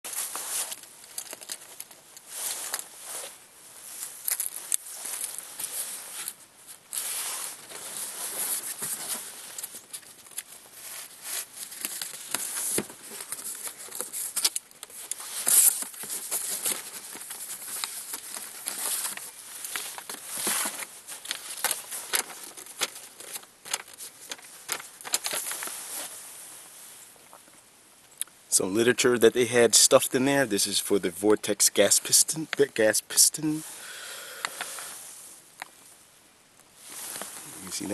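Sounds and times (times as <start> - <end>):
paper and packing rustling: 0.1 - 26.2, 36.8 - 37.9.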